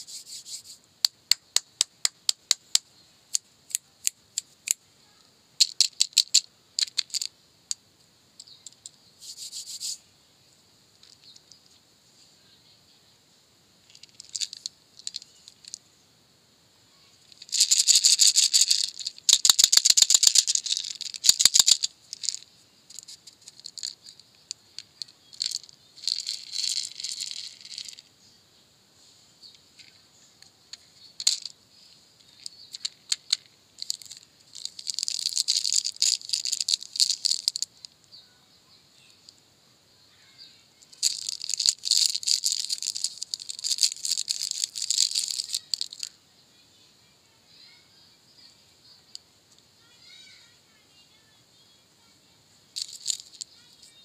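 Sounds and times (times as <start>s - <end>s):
candy rattling in plastic tub: 5.6s - 7.3s, 13.9s - 15.8s, 17.4s - 22.4s, 25.0s - 28.0s, 32.8s - 37.7s, 41.0s - 46.1s, 52.8s - 54.0s.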